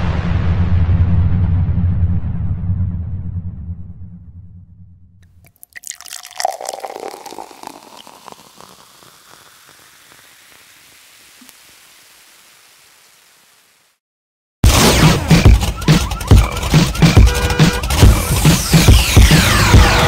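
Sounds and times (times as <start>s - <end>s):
rushing crackling water: 5.5s - 14.0s.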